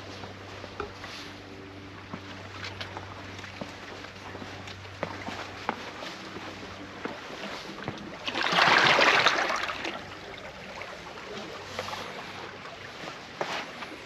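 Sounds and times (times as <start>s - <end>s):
seawater surging among concrete: 0.0s - 14.0s.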